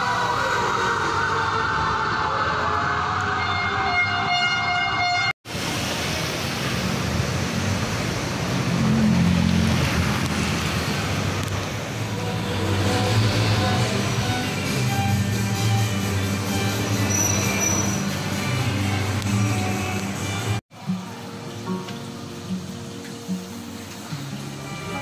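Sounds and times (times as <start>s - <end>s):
emergency siren wailing: 0.0s - 5.3s
city traffic noise: 0.0s - 25.0s.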